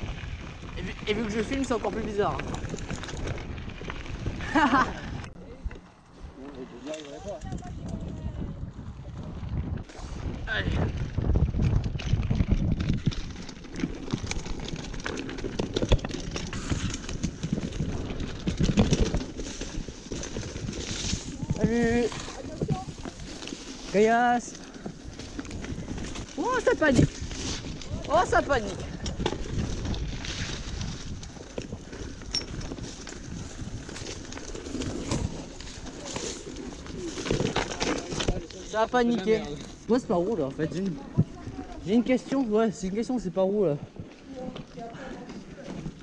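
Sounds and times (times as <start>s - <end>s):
tyres rumbling on dirt: 10.1s - 46.0s
bike knocking over stones: 11.2s - 42.3s.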